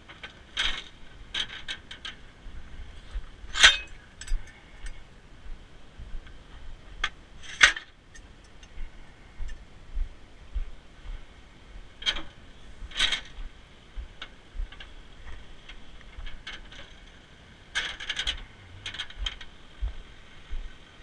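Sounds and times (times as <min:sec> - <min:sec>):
dull low bumps: 0:18.2 - 0:20.8.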